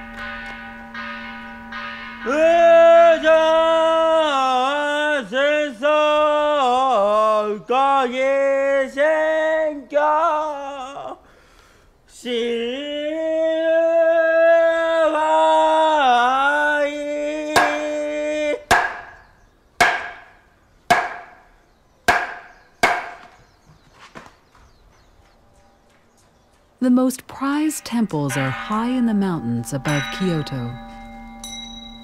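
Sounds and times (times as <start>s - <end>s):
monk chanting: 2.2s - 11.2s
mallet knocking wooden board: 18.7s - 19.1s, 19.8s - 20.2s, 20.9s - 21.3s, 22.1s - 23.2s.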